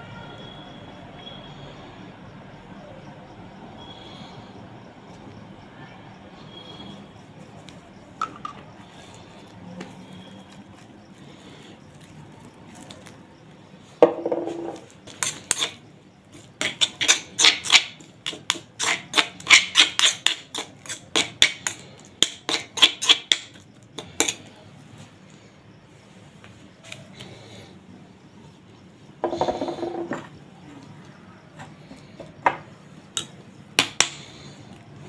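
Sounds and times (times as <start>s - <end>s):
spoon scraping in stone mortar: 14.5s - 24.5s.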